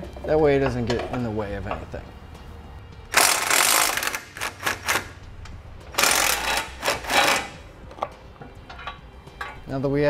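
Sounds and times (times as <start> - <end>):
hand ratchet clicking: 3.1 - 5.1, 6.0 - 7.6.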